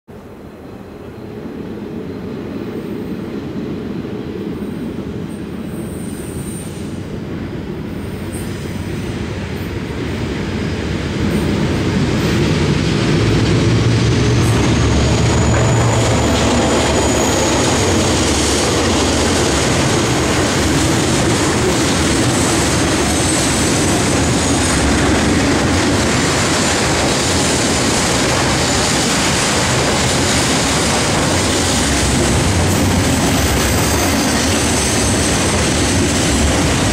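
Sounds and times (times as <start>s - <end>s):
diesel locomotive engine rumble: 0.2s - 36.9s
high wheel squeal: 14.4s - 19.4s, 32.7s - 35.6s.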